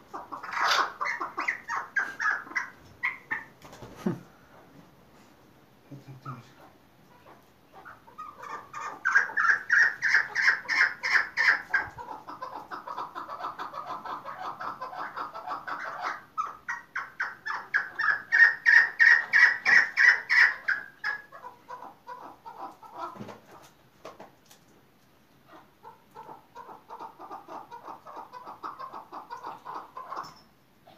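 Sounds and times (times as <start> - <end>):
partridge calling: 0.1 - 3.5, 7.8 - 23.2.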